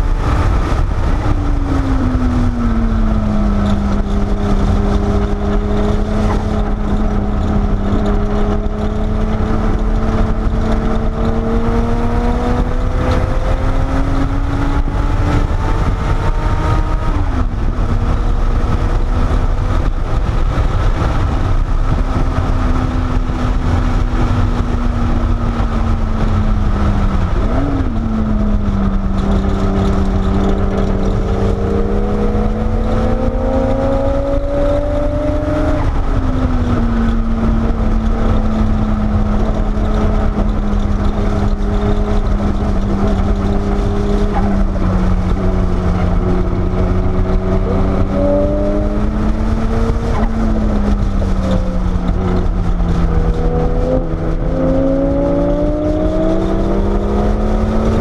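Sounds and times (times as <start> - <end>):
car engine accelerating: 0.0 - 58.0
road and wind rumble: 0.0 - 58.0.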